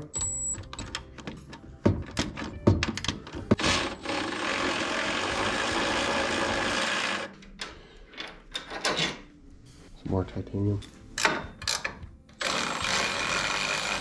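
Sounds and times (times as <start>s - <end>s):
electric ratchet running: 3.6s - 7.3s, 12.4s - 14.0s.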